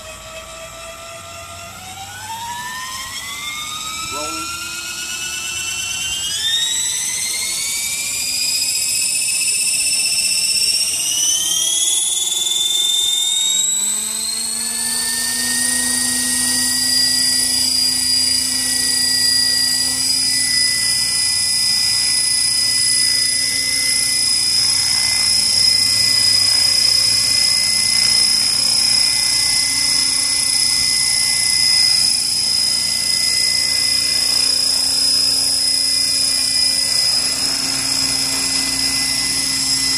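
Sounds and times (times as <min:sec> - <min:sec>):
model helicopter whine: 0:00.0 - 0:39.9.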